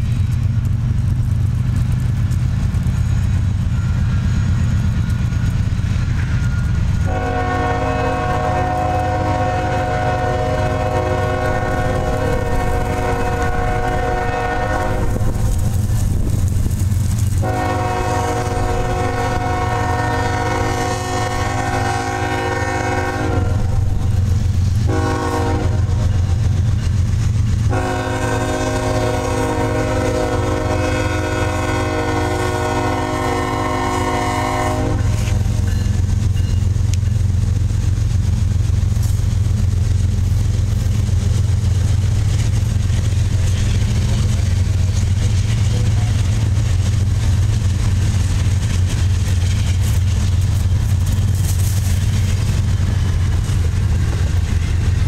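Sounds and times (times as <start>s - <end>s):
locomotive air horn blasts: 7.0s - 15.3s, 17.4s - 24.2s, 24.8s - 26.4s, 27.7s - 35.6s.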